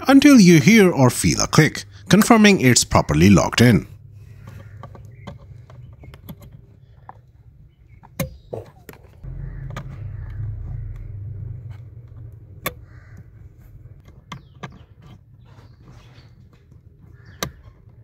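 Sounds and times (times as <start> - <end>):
connector latches clicking: 4.4 - 7.3
low rumble: 9.2 - 14.0.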